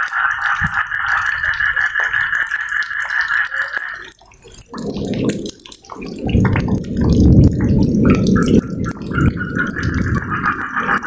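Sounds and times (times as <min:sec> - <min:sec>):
pulsing frog chorus: 0:00.0 - 0:04.0, 0:08.0 - 0:11.0
rain: 0:00.0 - 0:11.0
water drips: 0:00.0 - 0:11.0
low rolling thunder: 0:04.7 - 0:11.0.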